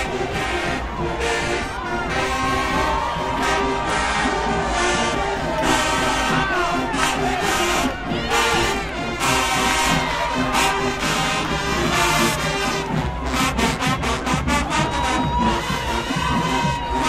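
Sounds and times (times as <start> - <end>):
brass chords: 0.0 - 17.0
marching band playing: 0.0 - 17.0.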